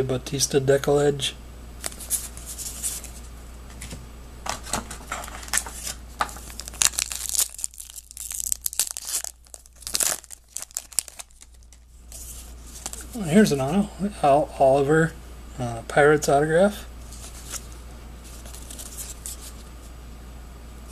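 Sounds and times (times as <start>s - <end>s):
wrapper tearing and crinkling: 5.0s - 11.8s, 18.3s - 19.6s.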